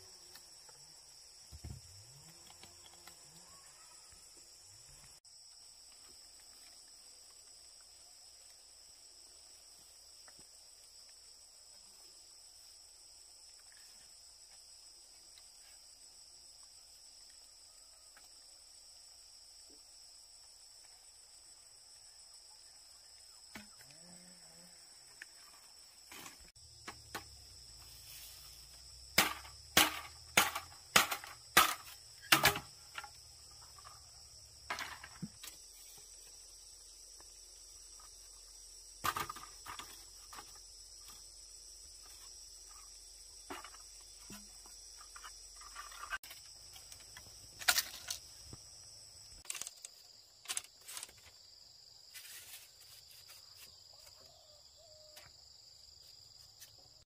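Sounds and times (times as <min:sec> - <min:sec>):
high insect drone: 0:00.0 - 0:57.0
bamboo knocks: 0:29.2 - 0:33.1.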